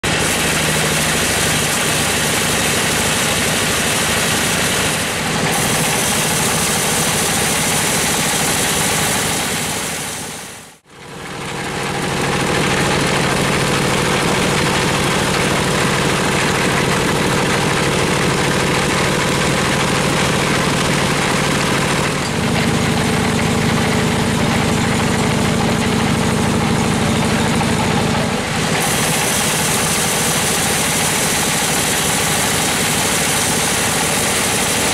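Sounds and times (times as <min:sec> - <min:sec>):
engine hum: 0:00.0 - 0:34.9
saw blade cutting log hiss: 0:28.6 - 0:34.9.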